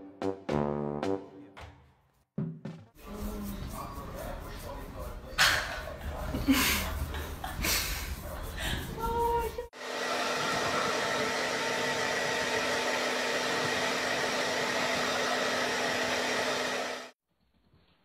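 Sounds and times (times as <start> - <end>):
hair dryer running: 9.8 - 17.2.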